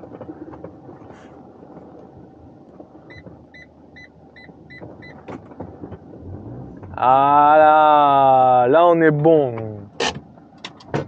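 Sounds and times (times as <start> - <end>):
van engine running: 0.0 - 11.0
parking sensor beeping: 3.0 - 5.3.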